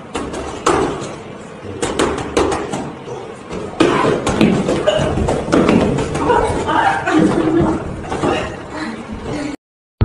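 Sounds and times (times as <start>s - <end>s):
punches slapping boxing pads: 1.8s - 2.9s, 3.5s - 6.4s.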